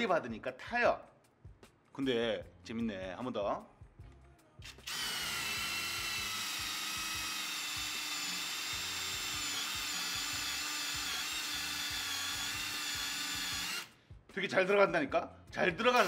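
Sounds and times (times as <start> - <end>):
cordless drill boring into wood: 4.8 - 13.9
drill bit grinding wood: 4.8 - 13.9.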